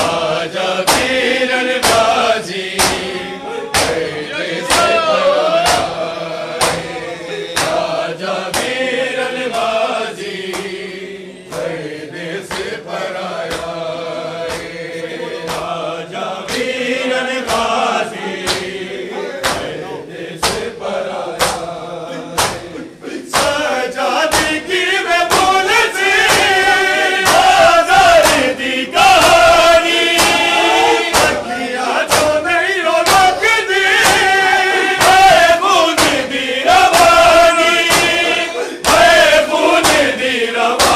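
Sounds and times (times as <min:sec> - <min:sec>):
men chanting in unison: 0:00.0 - 0:40.9
hands slapping bare chests: 0:00.8 - 0:02.2, 0:02.8 - 0:08.9, 0:10.4 - 0:10.8, 0:11.5 - 0:11.8, 0:12.5 - 0:12.8, 0:13.4 - 0:13.8, 0:14.4 - 0:14.8, 0:15.5 - 0:15.8, 0:16.5 - 0:16.8, 0:17.4 - 0:18.8, 0:19.4 - 0:19.8, 0:20.4 - 0:20.7, 0:21.3 - 0:21.8, 0:22.4 - 0:32.4, 0:33.0 - 0:40.9.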